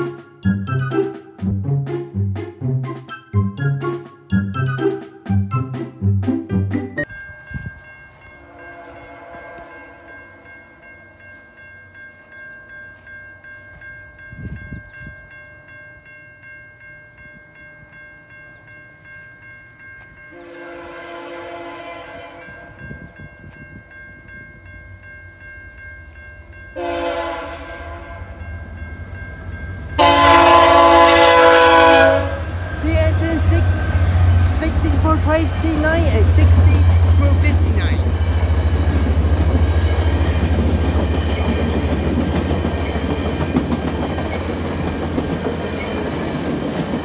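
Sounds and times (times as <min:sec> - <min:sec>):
crossing signal bell ringing: 0:00.0 - 0:01.4, 0:06.8 - 0:47.0
train horn blasts: 0:08.4 - 0:10.4, 0:20.4 - 0:22.8, 0:26.8 - 0:28.4, 0:30.0 - 0:32.6
train rumble: 0:20.1 - 0:47.0.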